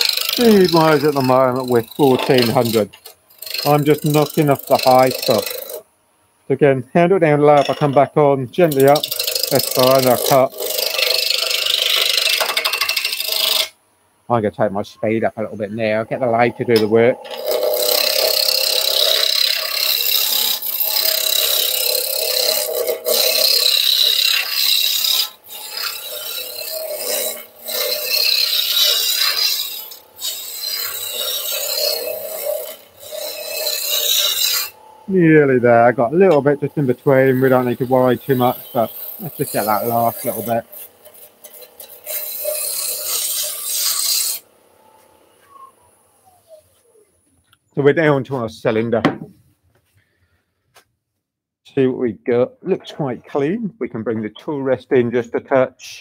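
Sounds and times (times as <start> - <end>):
lathe gouge cutting wood: 0.0 - 5.8, 8.6 - 13.7, 15.9 - 45.1.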